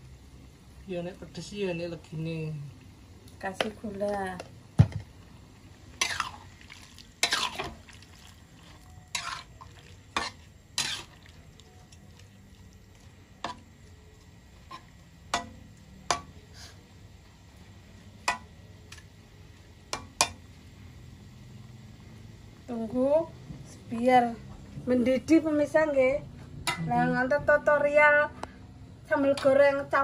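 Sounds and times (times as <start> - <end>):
metal spatula scraping wok: 6.0 - 6.5, 7.1 - 12.0, 14.6 - 16.9.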